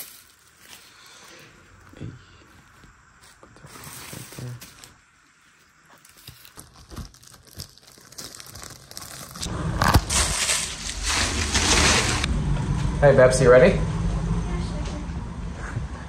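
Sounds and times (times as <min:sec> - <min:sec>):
plastic wrapping crinkling: 0:00.0 - 0:12.3.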